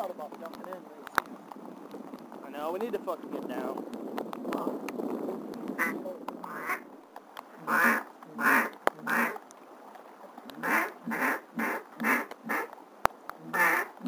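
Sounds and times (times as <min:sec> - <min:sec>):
duck quacking: 0:05.8 - 0:06.8, 0:07.6 - 0:09.4, 0:10.6 - 0:12.7, 0:13.4 - 0:14.0.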